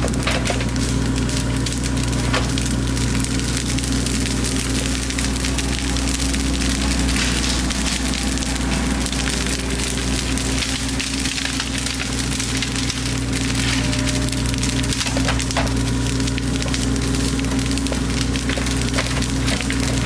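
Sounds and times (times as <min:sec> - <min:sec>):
bonfire crackling and popping: 0:00.0 - 0:20.0
excavator engine drone: 0:00.0 - 0:20.0.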